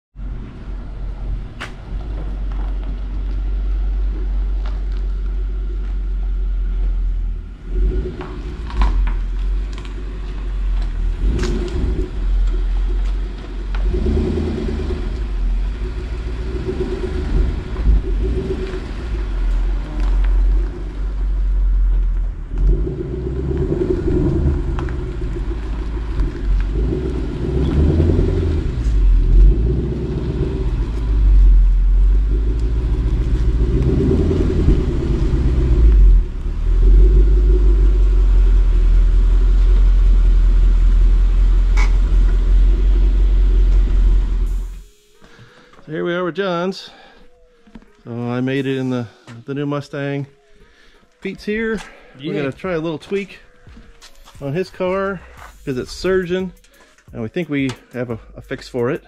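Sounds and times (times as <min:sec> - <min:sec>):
car exhaust rumble: 0:00.1 - 0:44.9.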